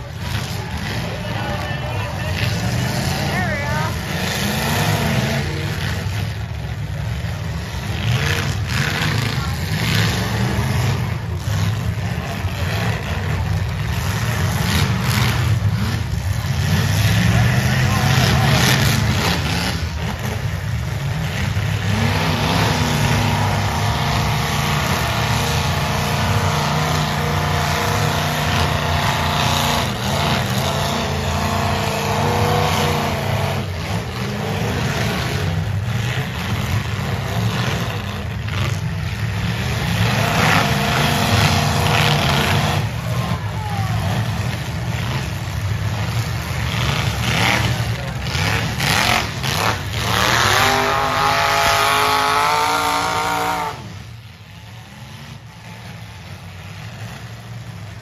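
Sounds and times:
car engines revving: 0:00.0 - 0:58.0.

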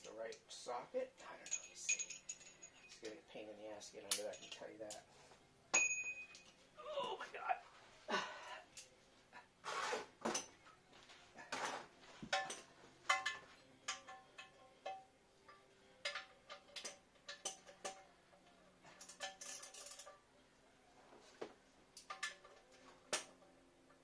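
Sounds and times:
metal hand tools clinking: 0:01.3 - 0:03.2, 0:04.1 - 0:05.0, 0:18.8 - 0:20.2.

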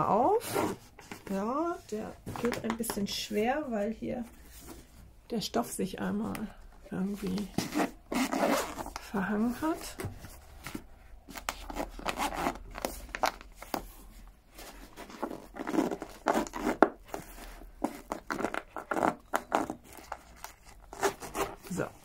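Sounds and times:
fabric rustling: 0:07.0 - 0:22.0
zipper tugged open: 0:07.3 - 0:09.0, 0:11.3 - 0:13.0, 0:15.0 - 0:21.9.

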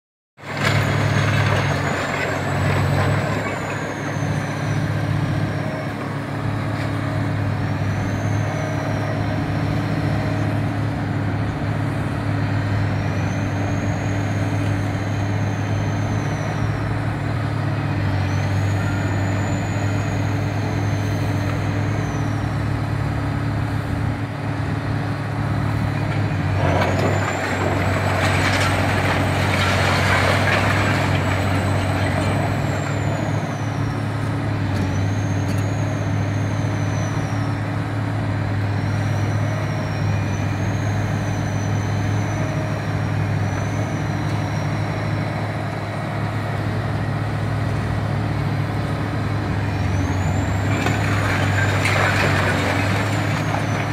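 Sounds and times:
diesel engine running: 0:00.4 - 0:53.9
concrete crunching and clattering: 0:26.1 - 0:33.3, 0:50.3 - 0:53.9.

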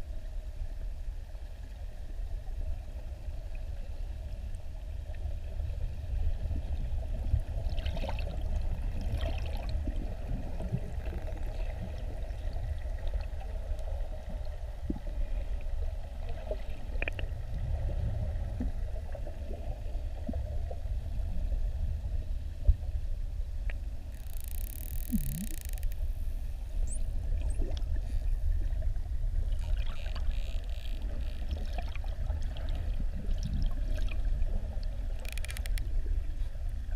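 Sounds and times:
underwater rumble of moving water: 0:00.0 - 0:36.9
faint clicks: 0:23.6 - 0:26.1, 0:35.1 - 0:35.9.

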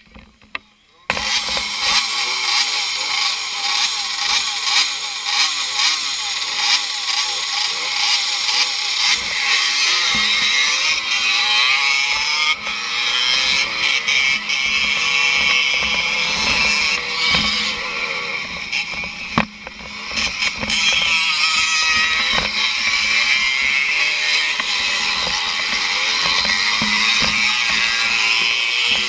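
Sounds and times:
motorcycle knocking on rough ground: 0:00.0 - 0:01.7, 0:13.6 - 0:23.8, 0:24.4 - 0:29.0
motorcycle engine buzzing: 0:00.0 - 0:29.0
motorcycle engines revving: 0:00.0 - 0:29.0.

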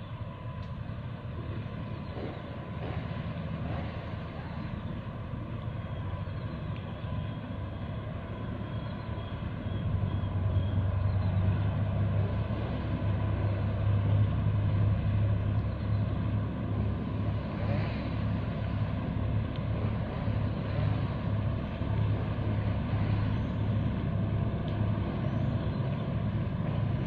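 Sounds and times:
ship engine drone throbbing: 0:00.0 - 0:27.0.

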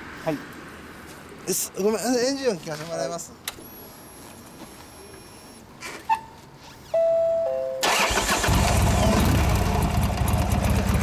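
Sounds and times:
starter motor whine: 0:07.8 - 0:09.7
motorcycle engine idling: 0:08.7 - 0:11.0.

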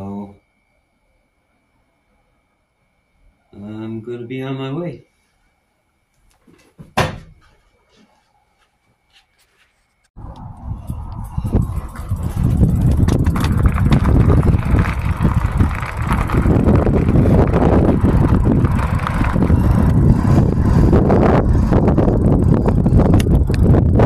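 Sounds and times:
tyre and road rumble: 0:10.2 - 0:24.0
wind buffeting microphone: 0:10.2 - 0:24.0.

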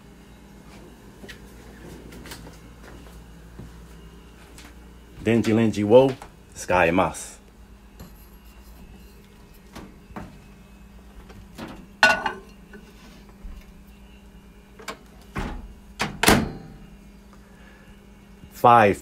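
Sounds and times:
mug set down on glass: 0:12.0 - 0:12.6
microwave door opening click: 0:14.8 - 0:16.8
microwave door shutting thunk: 0:14.8 - 0:16.8.

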